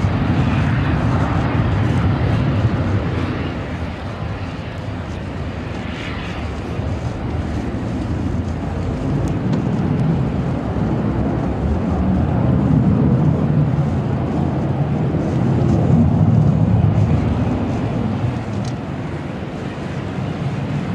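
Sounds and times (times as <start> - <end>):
jet engines roaring: 0.0 - 20.9.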